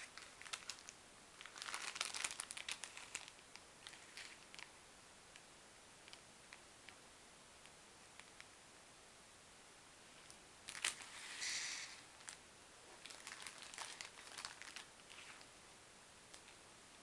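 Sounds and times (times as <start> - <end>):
plastic bags crinkling: 0.0 - 4.7, 10.6 - 15.5.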